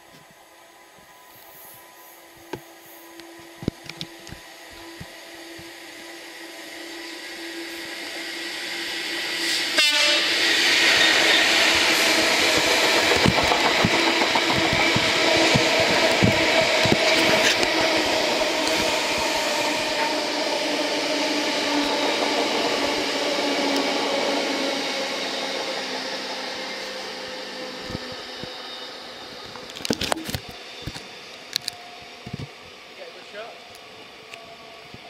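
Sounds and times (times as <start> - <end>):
train wheels clattering on rails: 10.4 - 28.7.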